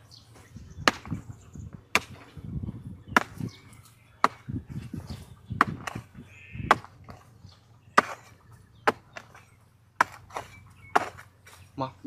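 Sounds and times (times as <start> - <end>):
hoe striking ground: 0.3 - 1.3, 1.9 - 2.4, 3.2 - 7.3, 7.9 - 11.7
soil scraping: 3.2 - 12.0.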